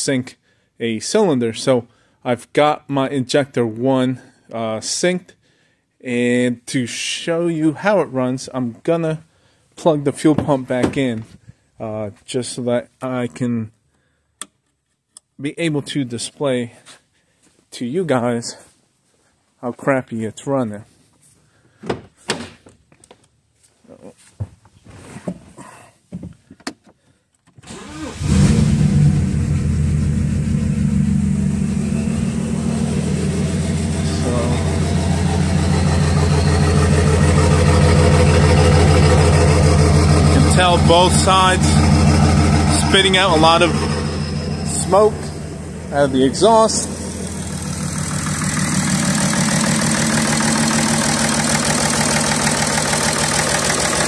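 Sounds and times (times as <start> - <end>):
diesel engine starting and idling rough: 27.6 - 54.0.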